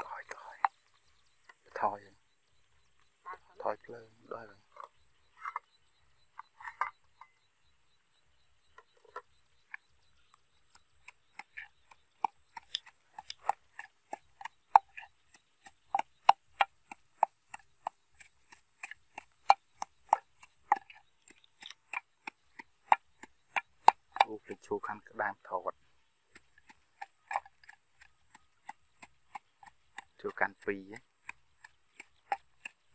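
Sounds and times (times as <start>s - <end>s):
wooden pestle pounding in mortar: 11.0s - 24.7s, 26.3s - 32.9s.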